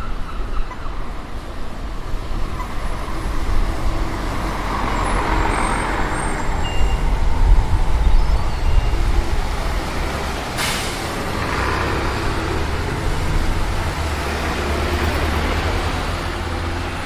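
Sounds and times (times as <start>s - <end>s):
buses passing: 0.0s - 17.0s
tyre hiss on wet road: 10.4s - 12.8s.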